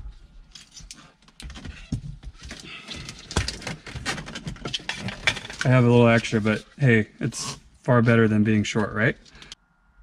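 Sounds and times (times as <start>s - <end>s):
plastic tubing rustling and clicking: 0.5s - 6.6s.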